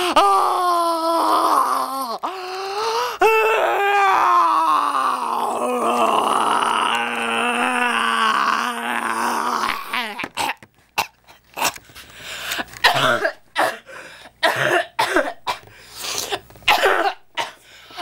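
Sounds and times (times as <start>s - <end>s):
person coughing: 12.8s - 18.0s.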